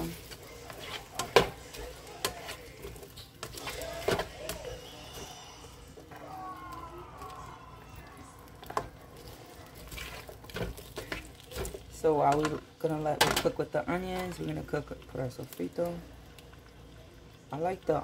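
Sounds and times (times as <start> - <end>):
spatula scraping a pan: 0.0 - 6.0, 8.6 - 12.5
faint sizzle of frying: 0.0 - 18.0.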